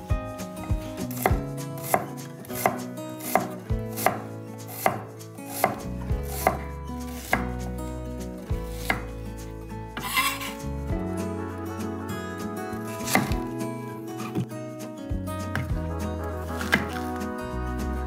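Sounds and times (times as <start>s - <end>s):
knife chopping on cutting board: 1.0s - 7.6s, 8.8s - 9.1s, 13.0s - 13.5s, 16.6s - 17.0s.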